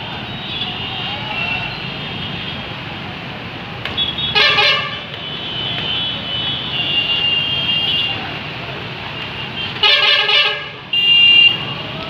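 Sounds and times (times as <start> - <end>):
engines rumbling in traffic: 0.0 - 12.0
vehicle horns honking: 3.9 - 8.2, 9.3 - 11.8.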